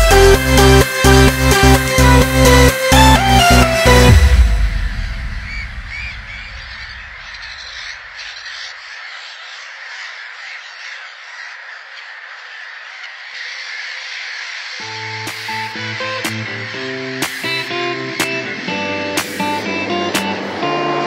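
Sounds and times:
electronic music: 0.0s - 7.6s, 14.8s - 21.0s
gulls squawking: 0.0s - 21.0s
wind: 4.4s - 21.0s
surf rushing: 14.8s - 21.0s.

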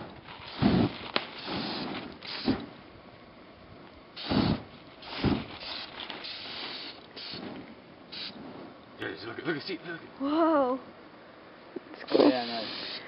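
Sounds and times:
whooshing flare-ups: 0.0s - 2.9s, 4.1s - 10.0s, 12.0s - 13.0s
aerosol can hissing: 0.5s - 2.7s, 4.2s - 8.4s, 12.0s - 13.0s.

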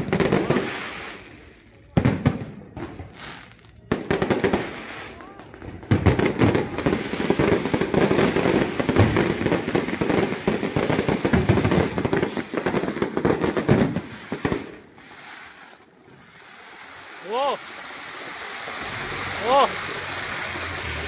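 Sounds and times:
fireworks bangs and crackling: 0.0s - 21.0s
low hiss: 0.0s - 21.0s.

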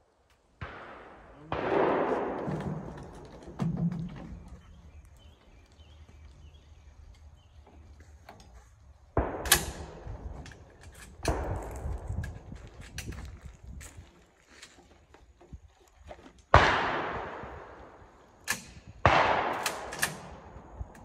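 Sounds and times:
shotgun shots: 0.6s - 3.2s, 9.2s - 10.3s, 11.2s - 12.1s, 16.5s - 20.6s.

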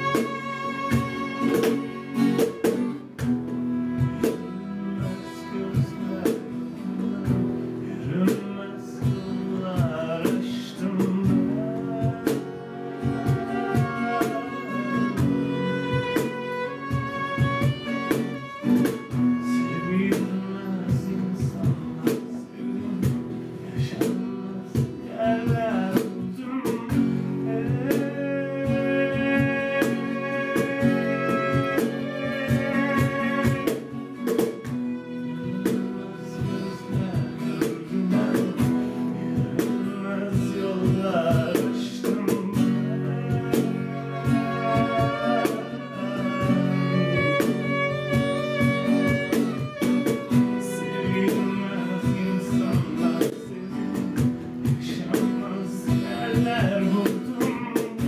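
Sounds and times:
man singing: 0.0s - 2.9s, 3.8s - 58.0s
cajon hand strikes: 0.0s - 4.6s, 29.2s - 35.0s, 47.2s - 50.6s
violin playing melody: 0.0s - 8.2s, 11.5s - 22.0s, 27.4s - 39.5s, 42.7s - 53.5s
strummed acoustic guitar: 0.0s - 58.0s.

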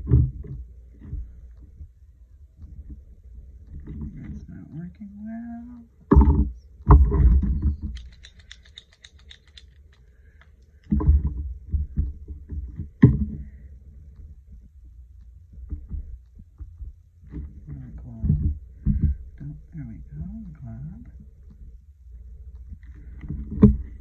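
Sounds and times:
fast light ticks: 7.8s - 10.9s.

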